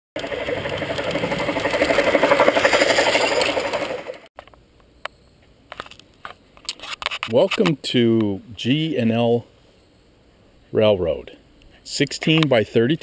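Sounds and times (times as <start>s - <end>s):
model steam locomotive chatter: 0.2s - 4.3s.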